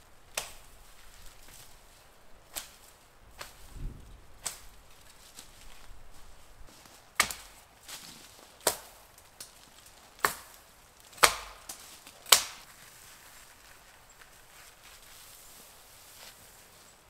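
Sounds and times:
blade chopping branches: 0.3 - 1.7, 2.5 - 5.9, 6.7 - 12.7.

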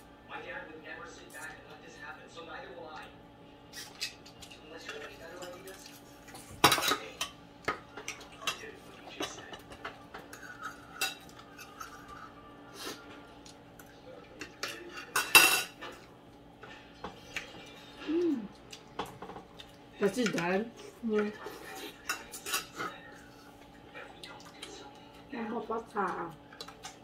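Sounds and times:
cutlery clinking on plates: 3.8 - 12.3, 14.4 - 17.7, 21.9 - 23.0
cutlery clattering: 6.4 - 11.9, 14.4 - 16.0.

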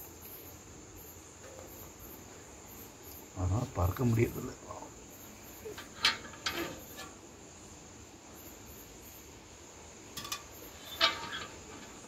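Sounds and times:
crickets chirping: 0.0 - 12.0
metal pail knocks and scrapes: 1.4 - 2.0, 5.7 - 7.2, 10.1 - 12.0.

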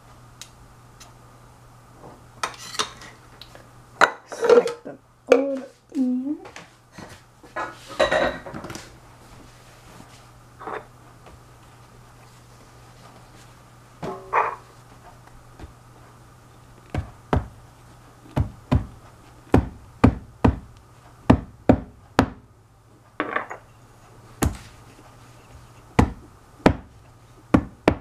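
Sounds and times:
dishes knocking on padded counter: 17.0 - 17.6, 19.5 - 20.7, 21.3 - 22.4, 26.0 - 26.9, 27.5 - 28.0.

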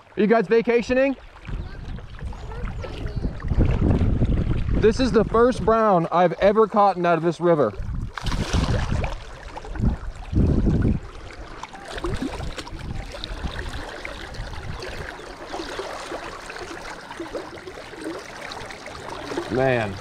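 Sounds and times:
river water running and gurgling: 0.0 - 20.0
fish thrashing and splashing: 7.8 - 20.0.

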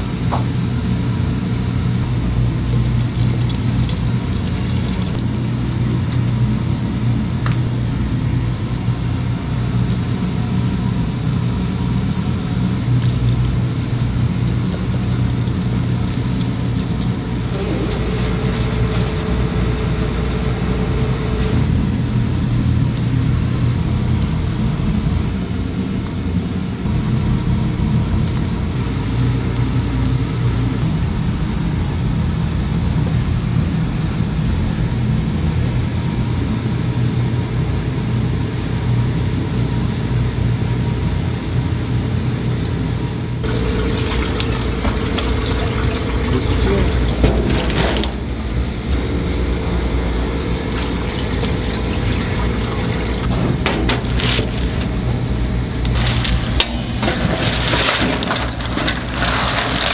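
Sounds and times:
kitchen equipment rumble: 0.0 - 26.0, 43.4 - 59.9.

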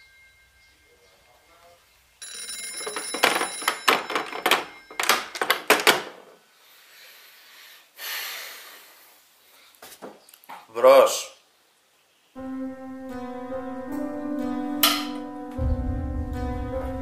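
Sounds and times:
telephone bell ringing: 2.2 - 5.4.

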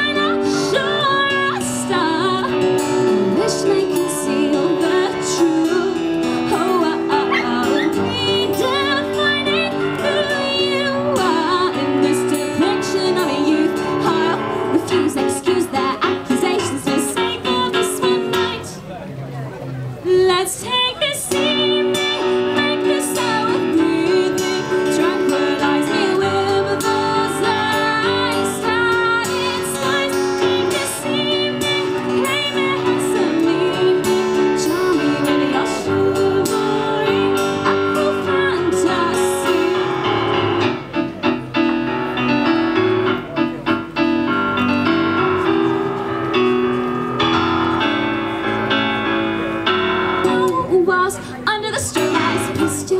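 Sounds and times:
strummed acoustic guitar: 0.0 - 18.8, 21.3 - 50.7
woman singing: 0.0 - 18.8, 20.1 - 40.4, 50.1 - 52.9
electric keyboard: 0.0 - 20.0, 21.3 - 52.9.

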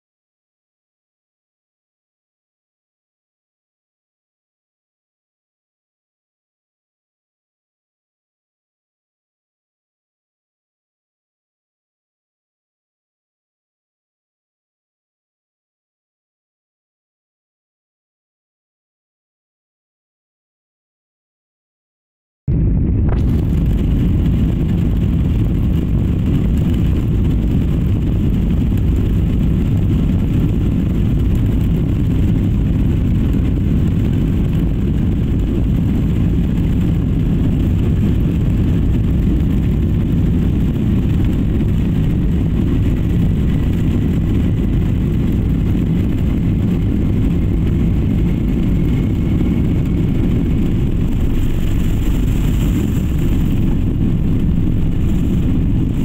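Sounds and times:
jet engines and wheels rumble: 22.5 - 56.0
faint rising whine: 46.4 - 56.0.

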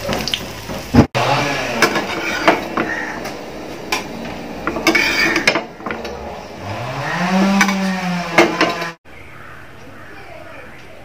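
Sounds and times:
long low rising tone: 1.2 - 7.4
metal tongs scraping frying pan: 1.7 - 6.6, 7.4 - 8.9.

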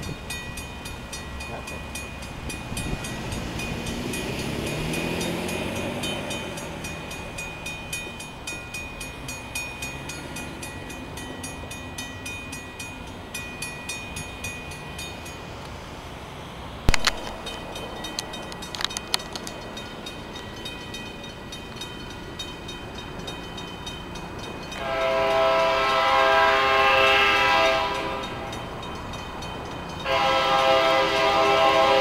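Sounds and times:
crossing signal bell ringing: 0.0 - 15.6, 17.2 - 32.0
locomotive air horn chord: 24.8 - 28.5, 30.0 - 32.0.

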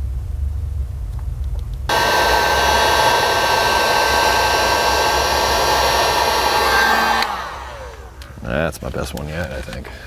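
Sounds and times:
heat gun blowing: 1.9 - 8.4.

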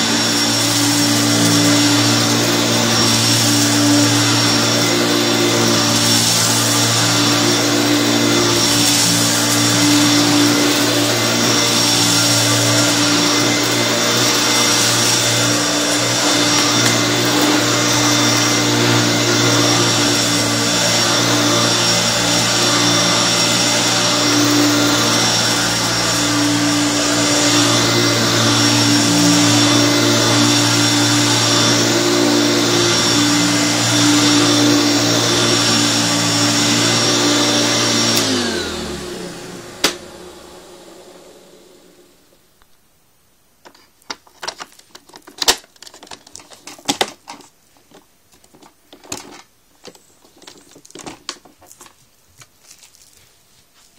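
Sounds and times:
vacuum cleaner motor whine: 0.0 - 42.4.

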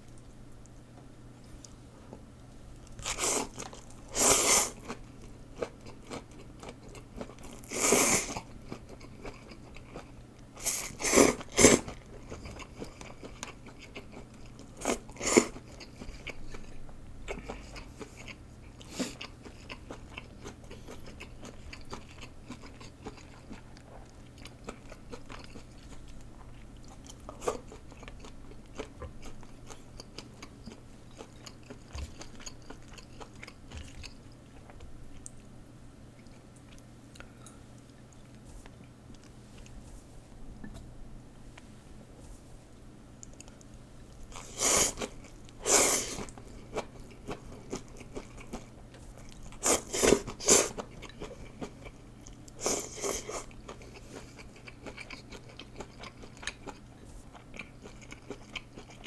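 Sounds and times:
chewing: 4.7 - 10.2, 11.4 - 35.4, 43.2 - 59.0
person eating noodles: 44.3 - 51.8.

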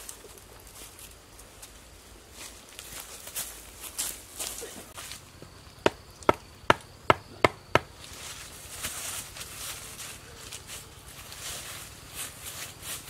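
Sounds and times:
rustling and scraping of dry leaves: 0.0 - 5.7, 7.9 - 13.0
hand tool chopping into ground: 5.8 - 8.0.

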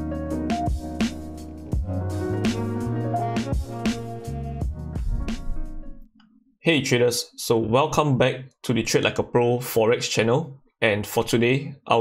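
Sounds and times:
intro music with steady beat: 0.0 - 6.1.

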